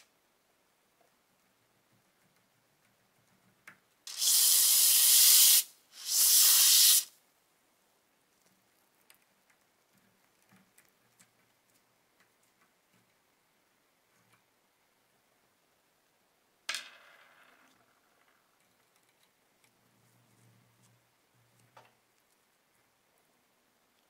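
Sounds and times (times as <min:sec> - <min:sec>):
aerosol spray can hissing: 0:04.1 - 0:07.2.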